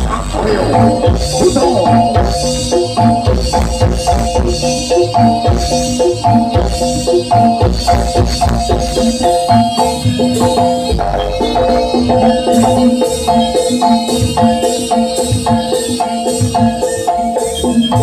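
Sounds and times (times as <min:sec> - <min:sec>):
drum strokes: 0:00.0 - 0:04.6
metallophone melody: 0:00.1 - 0:15.3.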